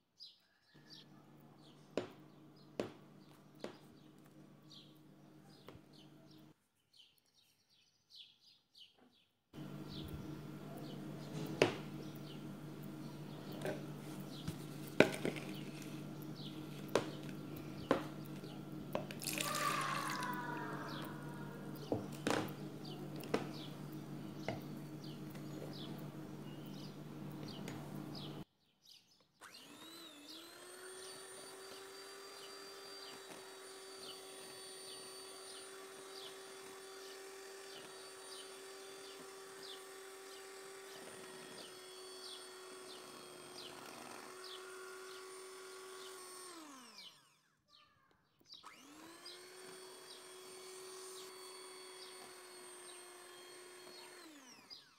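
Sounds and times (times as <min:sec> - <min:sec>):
electric hand mixer running: 0:09.6 - 0:28.4, 0:29.4 - 0:47.6, 0:48.6 - 0:54.9
liquid pouring into jug: 0:19.0 - 0:20.4.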